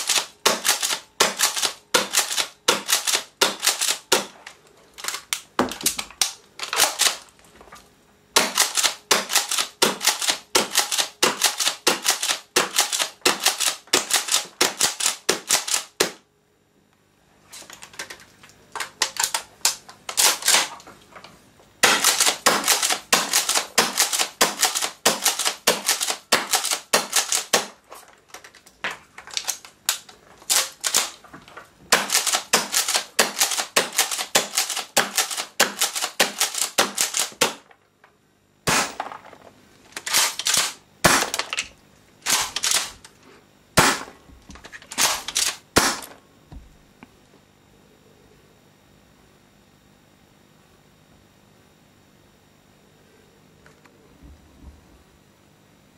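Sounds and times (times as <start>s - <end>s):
airsoft shotgun pumping and firing: 0.0s - 7.3s, 8.4s - 16.2s, 18.8s - 20.8s, 21.8s - 27.8s, 29.3s - 31.2s, 31.9s - 37.7s, 38.7s - 39.4s, 40.0s - 43.1s, 43.8s - 46.2s.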